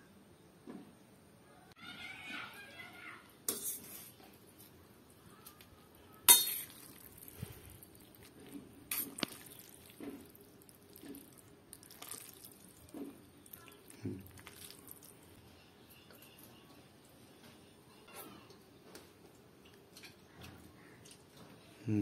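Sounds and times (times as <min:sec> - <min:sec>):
fork clinking against metal bowl: 0:06.3 - 0:06.9.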